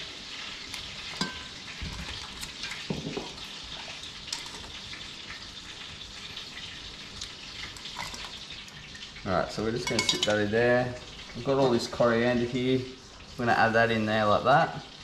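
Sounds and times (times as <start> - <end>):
tongs stirring thick sauce: 0.2 - 10.7
tongs clinking against metal pot: 0.7 - 3.4, 4.3 - 4.8, 7.8 - 8.4, 9.7 - 10.6.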